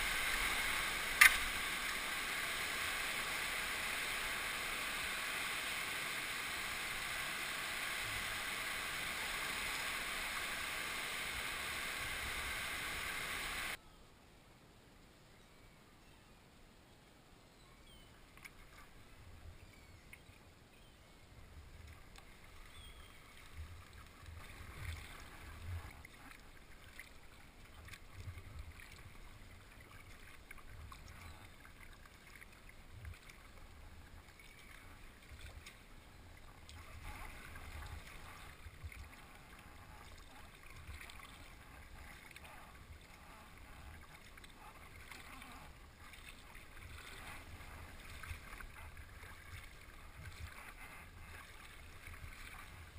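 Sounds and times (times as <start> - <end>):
paddle splashing in water: 0.0 - 13.8, 36.6 - 52.9.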